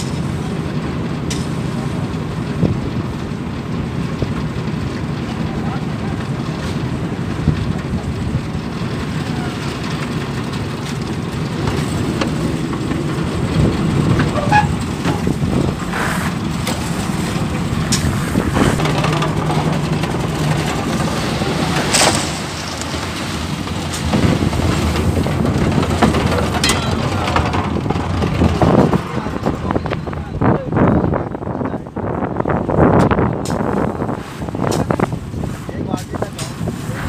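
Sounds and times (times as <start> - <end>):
machinery engine running: 0.0 - 31.4
shovels scraping and knocking: 15.0 - 27.6.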